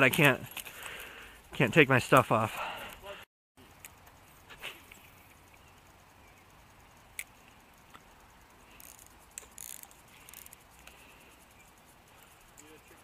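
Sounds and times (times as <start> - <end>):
fishing reel gears ticking: 0.0 - 2.3, 3.7 - 13.0.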